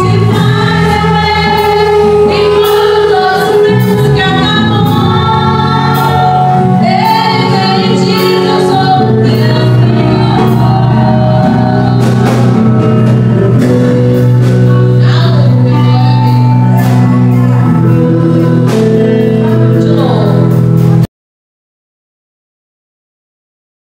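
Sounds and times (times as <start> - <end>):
boy singing: 0.0 - 12.6, 14.7 - 20.5
woman singing: 0.0 - 13.0, 14.6 - 20.6
instrumental accompaniment: 0.0 - 21.1.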